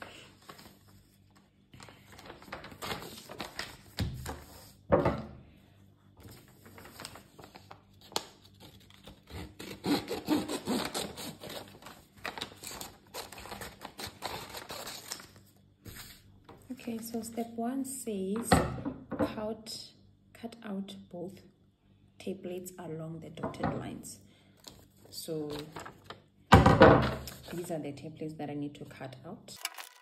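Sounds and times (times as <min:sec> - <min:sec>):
paper rustling: 0:00.0 - 0:04.8, 0:06.2 - 0:09.3, 0:10.7 - 0:17.2, 0:24.6 - 0:26.2.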